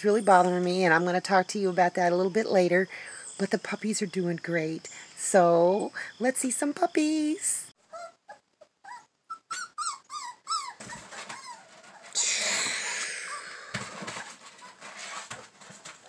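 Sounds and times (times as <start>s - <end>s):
dog whimpering: 7.9s - 14.8s
loud breathy hiss: 12.2s - 13.9s.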